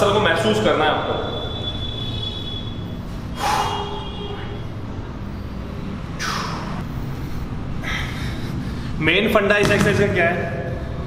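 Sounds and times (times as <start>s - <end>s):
man breathing out sharply: 3.1s - 4.0s
steady low rumble: 4.0s - 9.1s.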